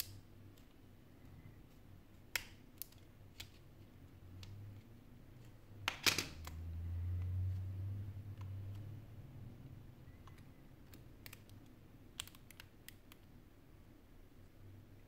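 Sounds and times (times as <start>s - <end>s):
low steady hum: 0.0s - 15.0s
plastic tool clicking on phone parts: 10.2s - 13.3s.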